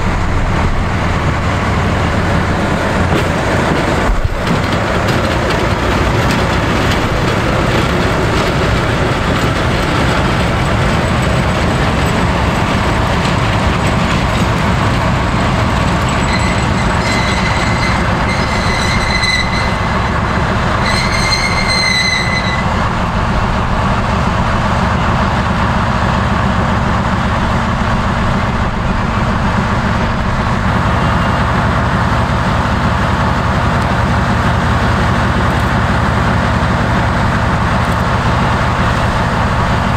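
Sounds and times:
diesel locomotive engine rumble: 0.0s - 39.9s
high-pitched squeal: 16.0s - 23.3s.

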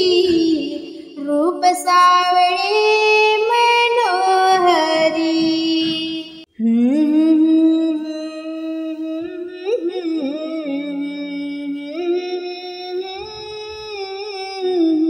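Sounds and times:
woman humming: 6.6s - 15.0s.

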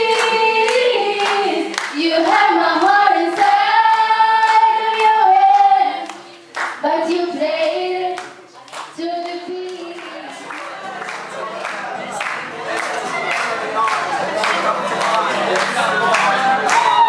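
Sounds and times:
girls singing slow melody: 0.0s - 10.5s
sharp hand claps: 0.1s - 2.0s, 6.0s - 6.8s, 8.2s - 17.0s.

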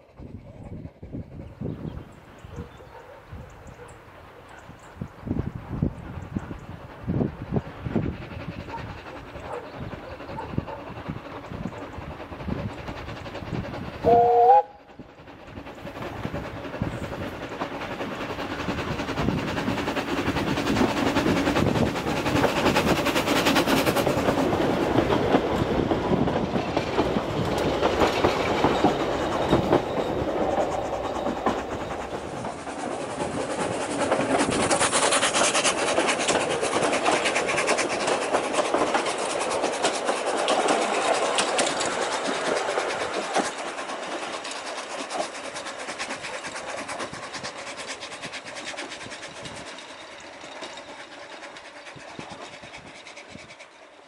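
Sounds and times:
steam locomotive exhaust: 3.2s - 54.0s
steam locomotive whistle: 14.0s - 14.9s
coaches clattering over rail joints: 15.2s - 54.0s.

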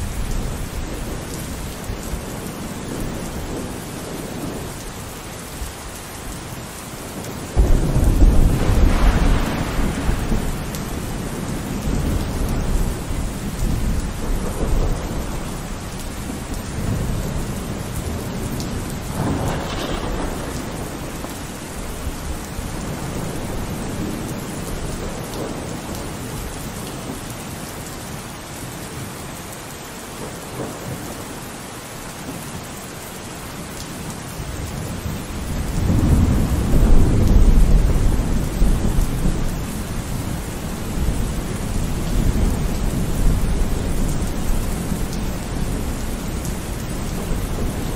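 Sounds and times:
heavy rain: 0.0s - 47.9s
storm wind: 0.0s - 47.9s
wind buffeting the microphone: 7.6s - 25.9s.

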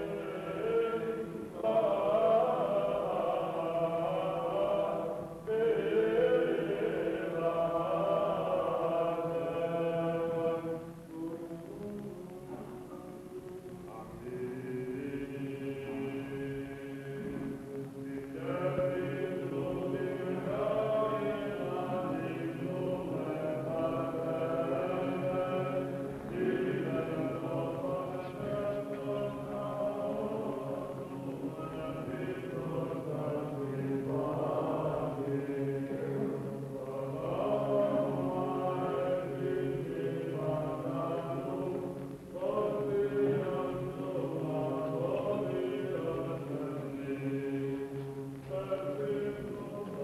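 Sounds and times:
men chanting: 0.0s - 10.8s, 13.9s - 47.9s, 48.5s - 50.0s.

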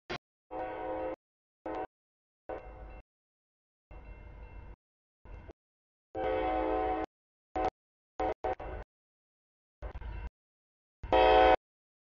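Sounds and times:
locomotive air horn: 0.5s - 1.9s, 6.2s - 8.8s, 11.1s - 11.6s.

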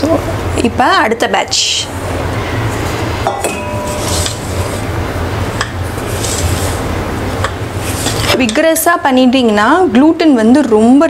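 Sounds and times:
steady low hum: 0.0s - 11.0s
spatula scraping batter in bowl: 3.8s - 4.9s, 5.8s - 7.0s.

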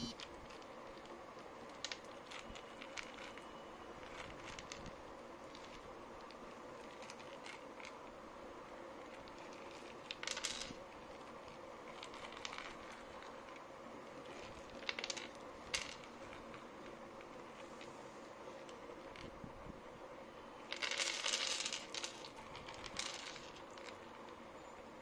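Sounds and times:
faint steady hum: 0.0s - 25.0s
dried beans clicking on wooden tray: 9.0s - 13.6s, 14.4s - 17.6s, 20.7s - 24.3s.

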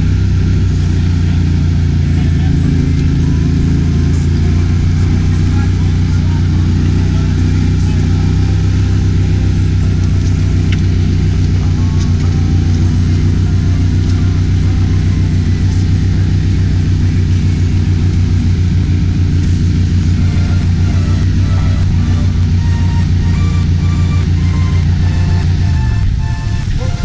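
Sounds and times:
boat motor droning: 0.0s - 27.0s.

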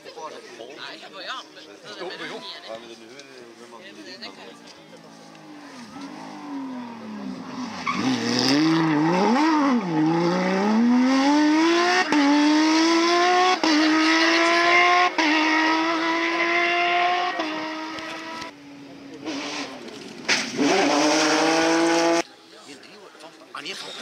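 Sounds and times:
car engine revving: 5.2s - 22.2s.

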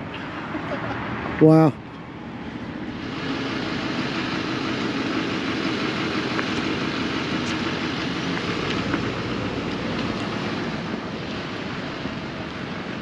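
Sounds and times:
vehicle engine running: 1.9s - 13.0s.

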